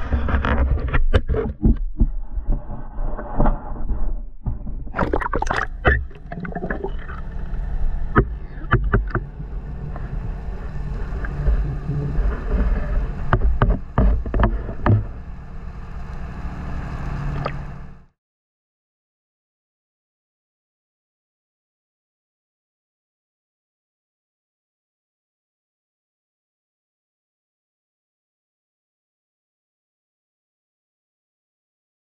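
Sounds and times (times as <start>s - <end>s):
muffled underwater drone: 0.0s - 18.2s
sharp underwater clicks and knocks: 4.4s - 15.4s
water splashing: 4.9s - 17.8s.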